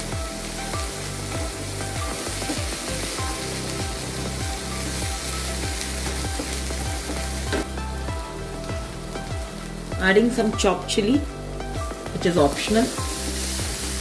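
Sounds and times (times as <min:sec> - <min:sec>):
background music: 0:00.0 - 0:14.0
paste sizzling in oil: 0:00.0 - 0:14.0.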